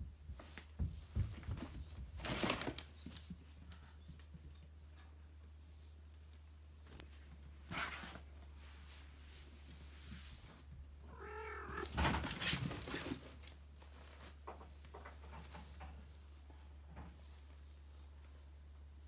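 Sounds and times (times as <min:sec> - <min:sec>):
soft scuffs and rustles: 0:06.0 - 0:15.7
fabric cat tent rustling: 0:06.8 - 0:14.4
cat meowing: 0:11.0 - 0:12.0.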